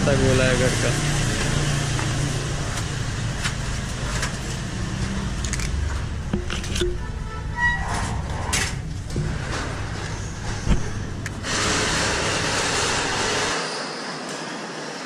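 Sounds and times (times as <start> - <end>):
street traffic rumble: 0.0 - 15.0
short squeak: 6.7 - 8.3.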